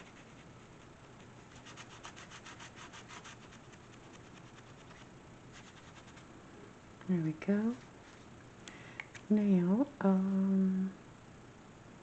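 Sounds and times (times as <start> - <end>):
pen scribbling on paper: 0.0 - 0.5.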